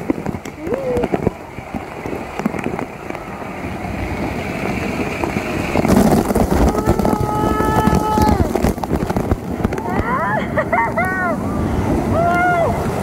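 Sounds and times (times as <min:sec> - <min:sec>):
rushing splashing water: 0:00.0 - 0:13.0.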